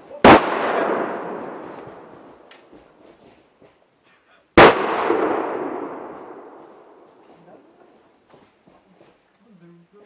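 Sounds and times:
gunshot with echo: 0:00.2 - 0:02.5, 0:04.6 - 0:07.0.

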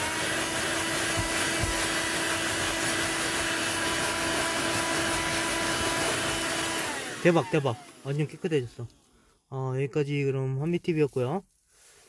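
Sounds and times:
car vacuum cleaner running: 0:00.0 - 0:09.2.

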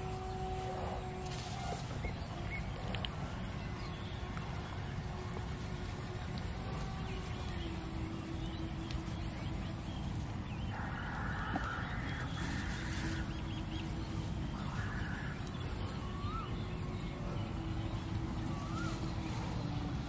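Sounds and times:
faint hum: 0:00.0 - 0:20.0
low rumble: 0:00.0 - 0:20.0
small birds chirping: 0:00.0 - 0:20.0
waterfowl calling: 0:10.7 - 0:19.6.

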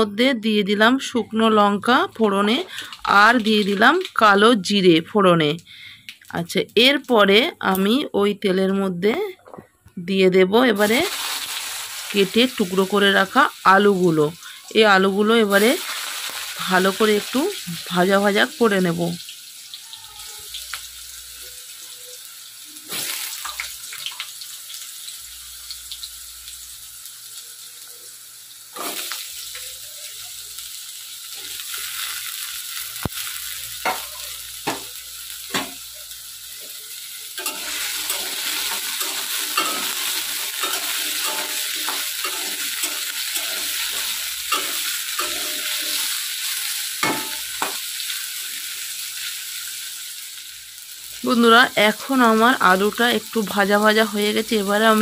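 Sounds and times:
potatoes sizzling in hot oil: 0:00.0 - 0:09.2, 0:10.2 - 0:55.0
metal spatula scraping a pan: 0:28.8 - 0:29.2, 0:37.4 - 0:47.7.

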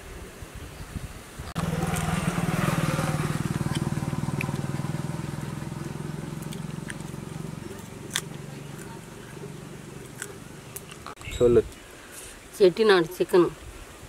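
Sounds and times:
motorcycle engine running: 0:01.6 - 0:11.2.

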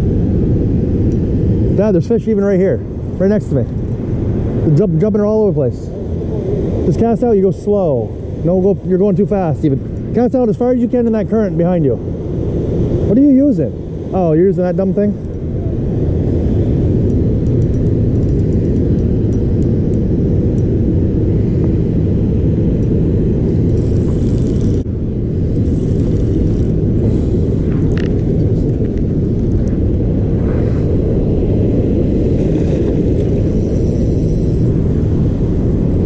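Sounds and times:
wind buffeting microphone: 0:00.0 - 0:36.0
faint high ticks: 0:17.1 - 0:20.7.

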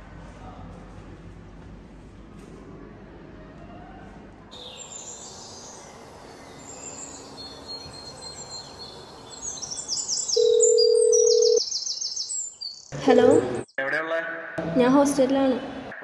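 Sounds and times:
small birds chirping: 0:04.6 - 0:13.8.

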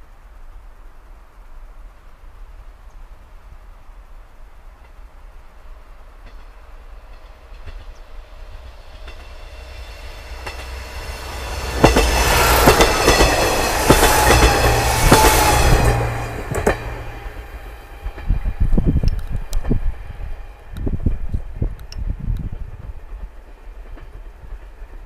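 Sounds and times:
diesel train drone: 0:03.3 - 0:25.0
wheels clattering over rail joints: 0:06.2 - 0:19.8.

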